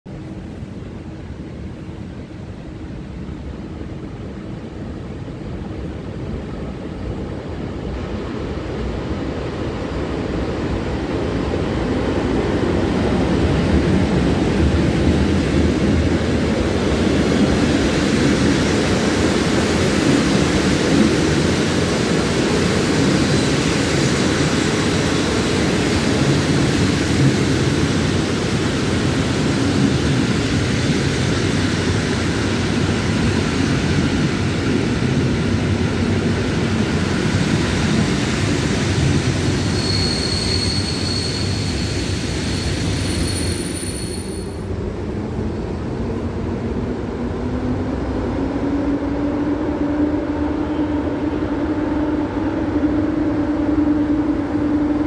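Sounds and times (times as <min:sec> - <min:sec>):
train wheels rolling on rails: 0:05.7 - 0:46.5.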